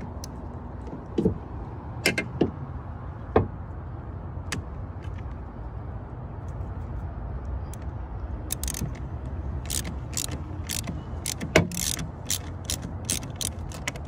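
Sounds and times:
ratchet wrench clicking: 7.7 - 14.0.

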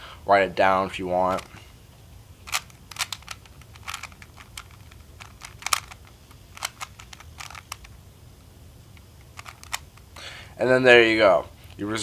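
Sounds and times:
puzzle cube clicking as turned: 1.3 - 1.5, 2.4 - 8.0, 9.0 - 10.1.

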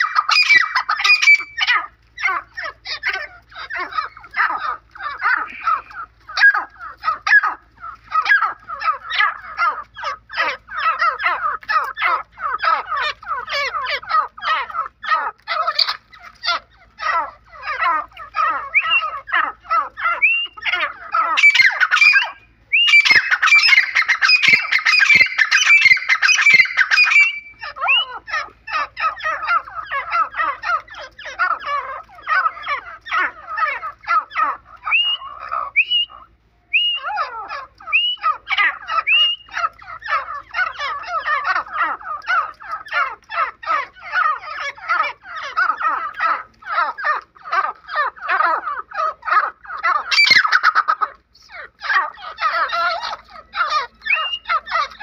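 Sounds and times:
francolins harsh chattering calls: 0.0 - 55.0
rising whistled bird notes: 18.7 - 19.1, 20.2 - 20.6, 21.4 - 28.1, 34.9 - 37.1, 37.9 - 38.2, 39.0 - 39.5, 54.1 - 54.5.

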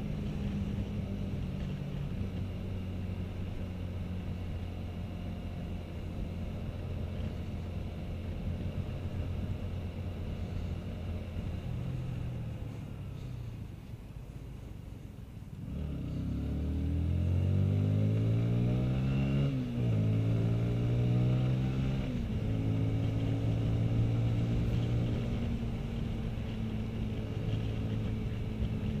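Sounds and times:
motorcycle engine accelerating: 15.6 - 29.0.

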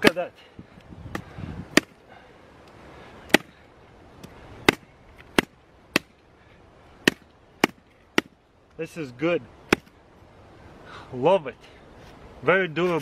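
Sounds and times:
hatchet chopping into wood: 1.1 - 2.0, 3.3 - 3.6, 4.6 - 6.2, 7.0 - 8.4, 9.7 - 9.9.

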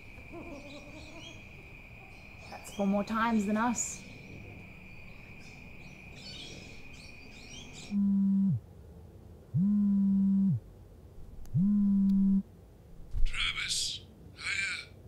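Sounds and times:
insects chirping: 0.0 - 8.6
smartphone vibrating on rug: 8.0 - 8.6, 9.6 - 10.6, 11.5 - 12.4.

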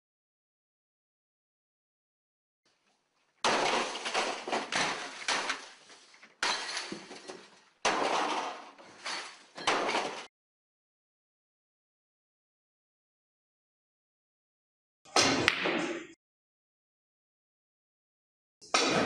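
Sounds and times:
sledgehammer smashing computer: 3.4 - 10.3.

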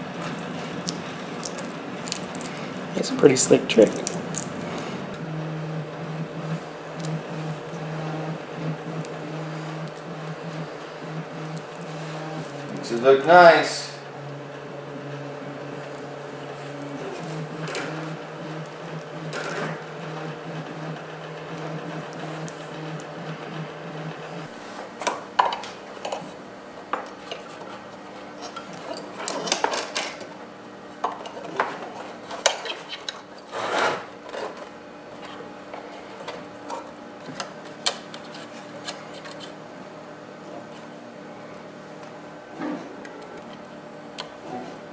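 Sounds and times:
steady low hum: 0.0 - 44.9
hands handling wires and parts: 3.8 - 4.9.

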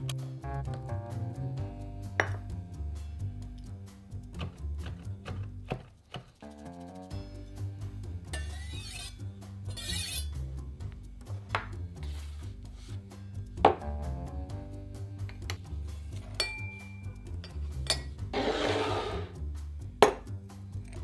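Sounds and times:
background music with bass beat: 0.0 - 5.7, 6.4 - 8.4, 9.2 - 16.4
metal cups clinking: 2.2 - 2.4, 8.3 - 10.3, 16.3 - 18.2
bowl scraping on wooden counter: 8.4 - 10.3, 18.3 - 19.4.

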